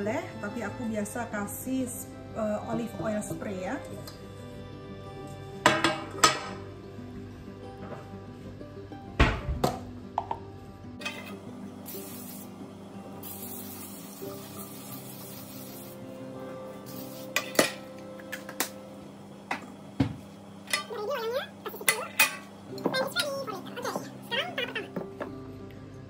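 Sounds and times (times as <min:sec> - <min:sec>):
aerosol spray hissing: 0:11.8 - 0:16.1, 0:16.8 - 0:17.6.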